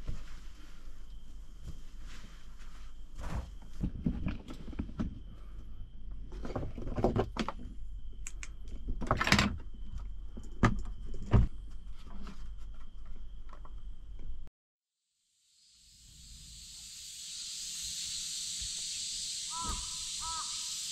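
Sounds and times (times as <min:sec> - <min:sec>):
rustling and light knocks: 0:00.0 - 0:05.2.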